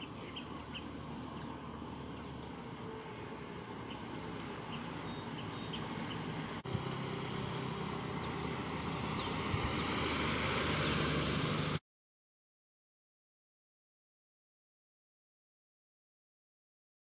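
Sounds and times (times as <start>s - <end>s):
car engine and tyre noise: 0.0s - 11.8s
insects chirping: 0.4s - 6.1s.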